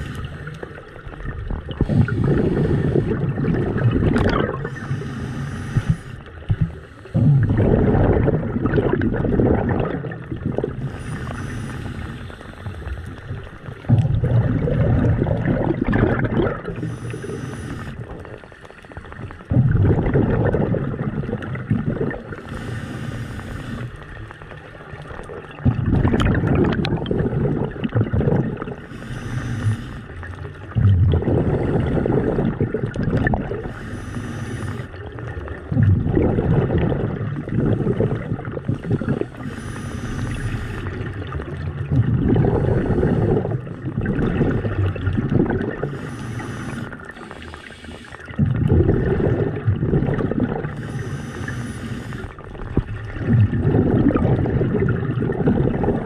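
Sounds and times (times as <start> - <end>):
bubbling exhale underwater: 0.0 - 18.5, 19.1 - 56.0
regulator air hiss: 4.7 - 6.2, 16.8 - 18.0, 22.4 - 23.9, 28.9 - 30.1, 33.7 - 34.9, 39.4 - 40.9, 45.9 - 48.2, 50.8 - 52.3.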